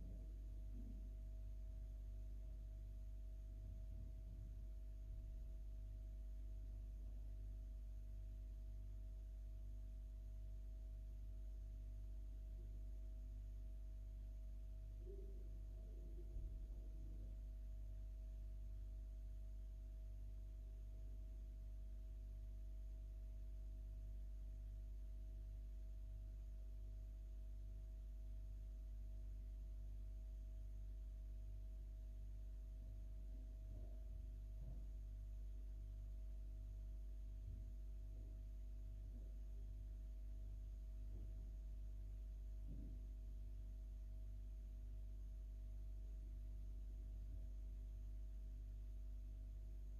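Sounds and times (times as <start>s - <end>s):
low electrical hum: 0.0s - 49.9s.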